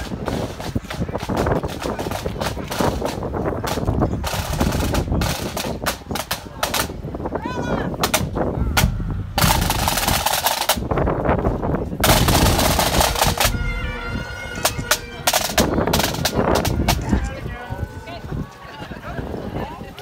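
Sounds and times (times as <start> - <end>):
wind buffeting microphone: 0.0 - 20.0
bagpipes playing: 12.3 - 18.5.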